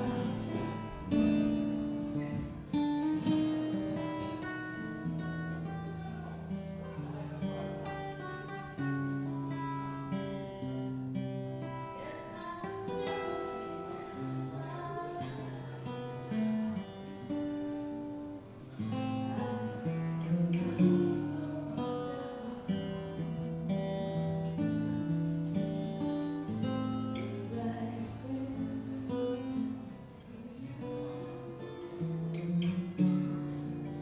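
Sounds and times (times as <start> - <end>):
acoustic guitar playing: 0.0 - 34.0.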